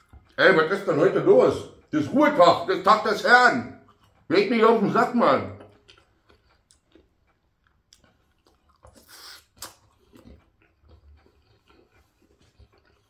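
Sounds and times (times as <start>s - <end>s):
chewing food: 0.0s - 13.0s
mouth clicks: 2.6s - 13.0s.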